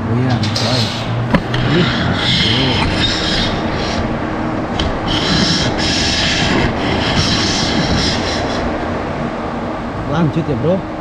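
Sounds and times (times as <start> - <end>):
machinery hum: 0.0 - 11.0
hissing: 0.4 - 9.0.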